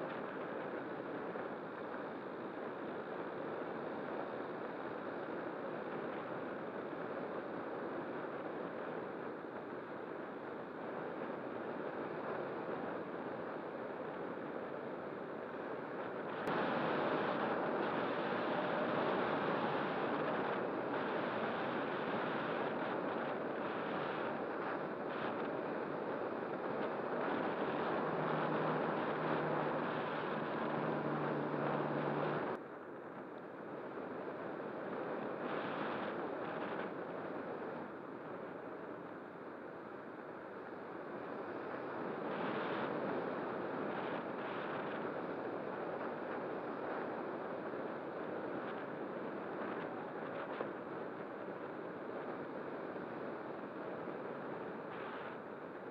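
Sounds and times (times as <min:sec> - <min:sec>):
model glider motor and propeller: 0:00.0 - 0:55.9
airflow rushing: 0:27.2 - 0:32.6.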